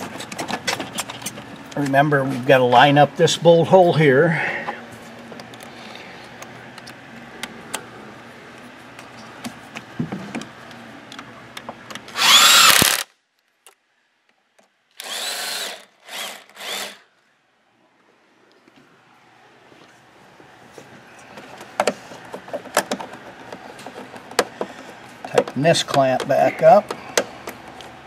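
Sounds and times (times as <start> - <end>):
cordless power driver whining: 12.0 - 13.1, 15.0 - 17.1.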